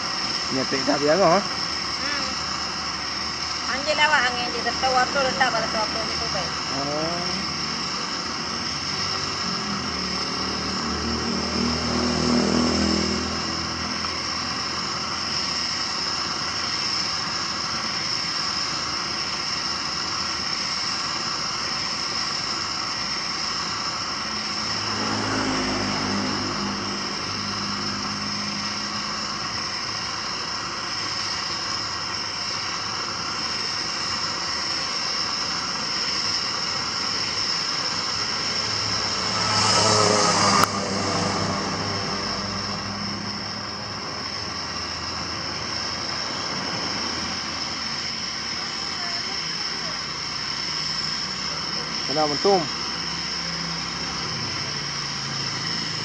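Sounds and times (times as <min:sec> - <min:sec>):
gas burner roaring hiss: 0:00.0 - 0:56.0
low hum: 0:37.7 - 0:48.3.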